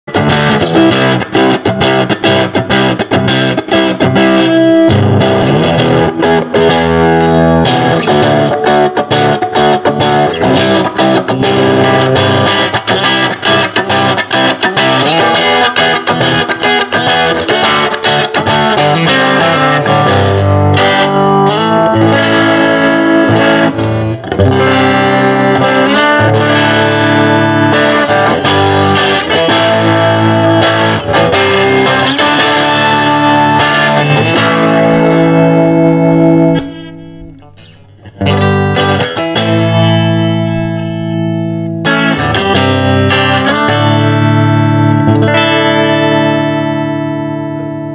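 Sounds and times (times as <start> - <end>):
electric guitar notes and chords: 0.0 - 47.9.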